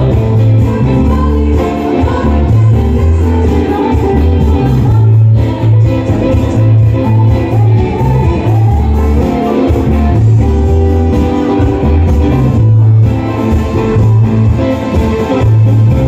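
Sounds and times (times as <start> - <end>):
live band playing: 0.0 - 16.0
strong bass line: 0.0 - 16.0.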